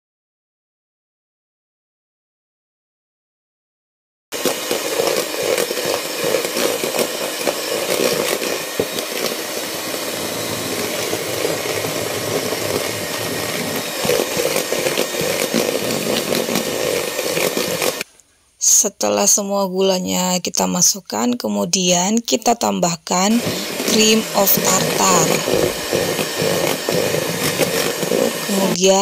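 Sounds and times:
electric hand mixer whipping: 0:04.3 - 0:18.1, 0:23.1 - 0:29.0.

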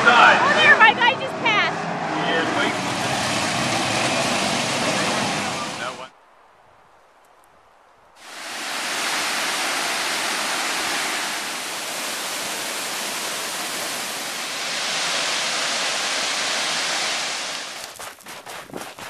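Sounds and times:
waterfall crashing into pool: 0:02.6 - 0:06.1, 0:08.2 - 0:18.2.

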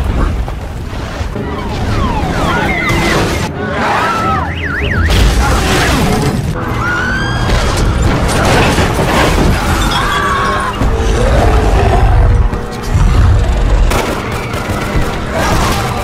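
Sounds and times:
film score music: 0:00.0 - 0:16.0
people screaming: 0:01.4 - 0:04.7, 0:06.6 - 0:08.7, 0:09.4 - 0:12.4.

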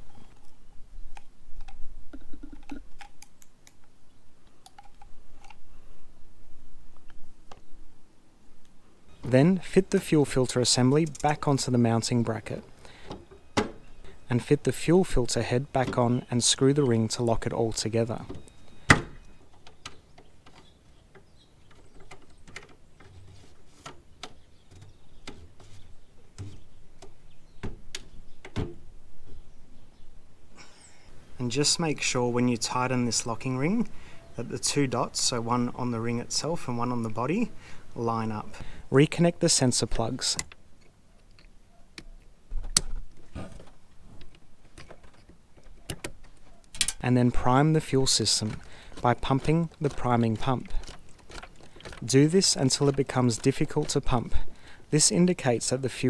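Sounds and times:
plastic and rubber clicks: 0:48.5 - 0:52.1.

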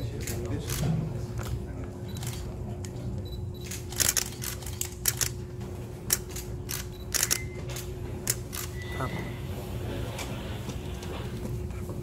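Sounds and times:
steady hum: 0:00.0 - 0:12.0
camera shutters clicking: 0:03.6 - 0:05.4, 0:06.1 - 0:08.8.

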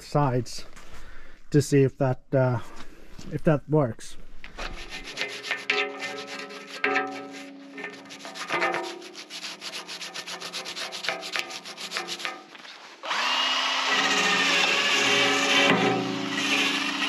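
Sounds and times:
brush scraping steel: 0:04.5 - 0:13.0, 0:13.9 - 0:17.0.

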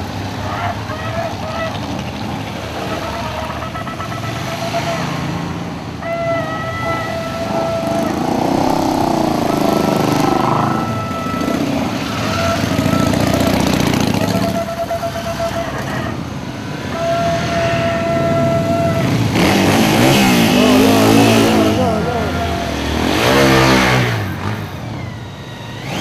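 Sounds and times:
motorcycles revving past: 0:00.0 - 0:26.0
horn blasts: 0:02.6 - 0:26.0.

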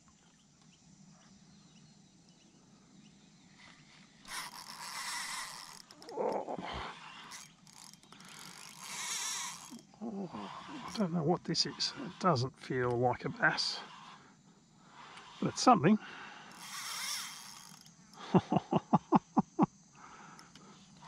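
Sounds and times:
fishing reel clicking and whirring: 0:04.2 - 0:18.4, 0:19.4 - 0:21.0.

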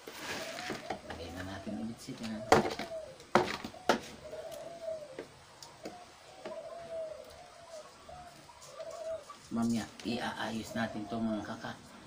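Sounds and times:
bird cooing: 0:00.2 - 0:11.8
knocks of plastic tub and sieve: 0:02.5 - 0:04.1.

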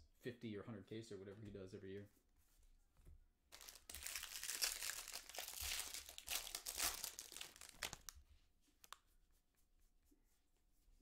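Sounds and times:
foil wrappers crinkling: 0:03.5 - 0:08.2.

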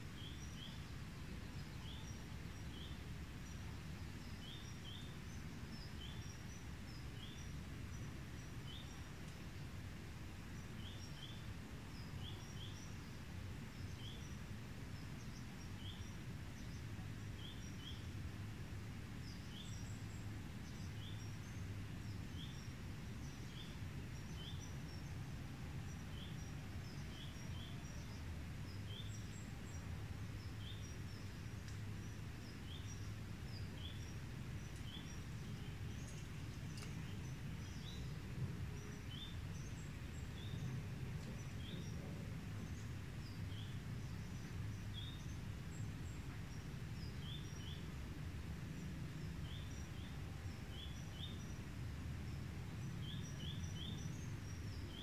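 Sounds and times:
bird chirping: 0:19.2 - 0:25.2, 0:25.8 - 0:47.9, 0:52.3 - 0:55.0.

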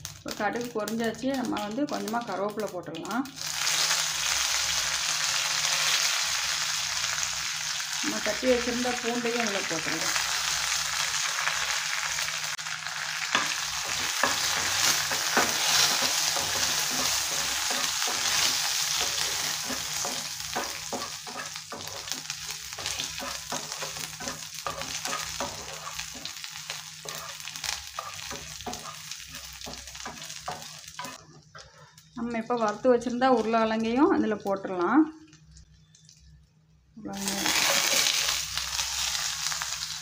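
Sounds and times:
food sizzling in hot oil: 0:00.0 - 0:31.3, 0:37.1 - 0:40.0
wooden spatula scraping a pan: 0:13.8 - 0:26.4, 0:27.0 - 0:32.0.

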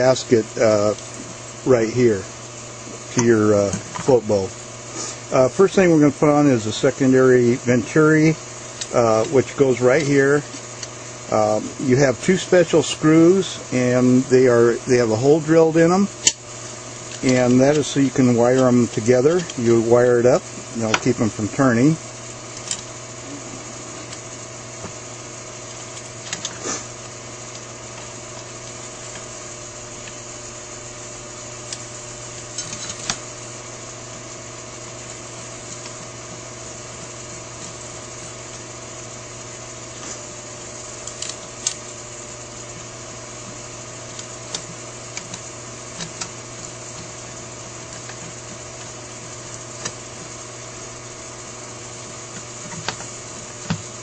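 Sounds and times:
steady background hum: 0:00.0 - 0:54.0
small metal parts clicking: 0:31.7 - 0:33.2, 0:41.0 - 0:41.9, 0:44.1 - 0:47.2.

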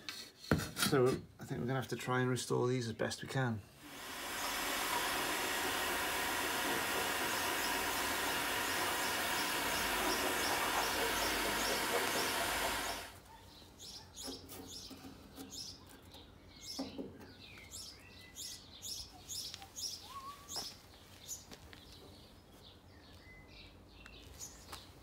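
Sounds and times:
birds chirping: 0:03.4 - 0:25.0
heat gun blowing: 0:03.8 - 0:13.2.

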